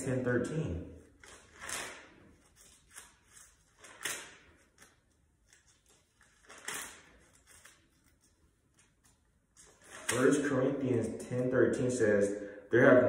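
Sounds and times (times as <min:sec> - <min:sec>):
book pages turning: 0:01.2 - 0:10.4.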